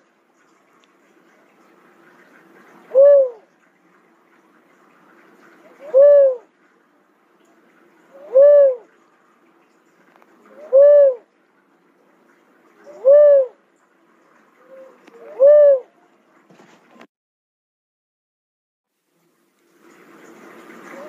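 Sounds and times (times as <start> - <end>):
dove cooing: 2.9 - 3.5, 5.6 - 6.5, 8.1 - 9.0, 10.5 - 11.3, 12.8 - 13.6, 14.6 - 16.0.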